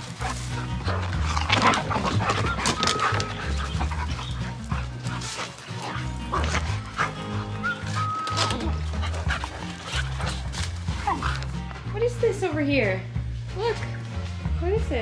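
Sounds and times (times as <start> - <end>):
dogs panting: 0.0 - 12.1
dogs scuffling: 0.0 - 12.1
background music with bass line: 0.0 - 15.0.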